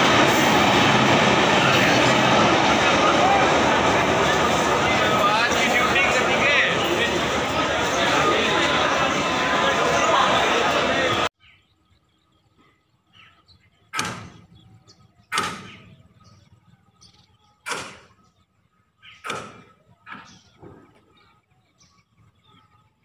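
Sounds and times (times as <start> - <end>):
hammer striking rails: 19.3 - 19.6.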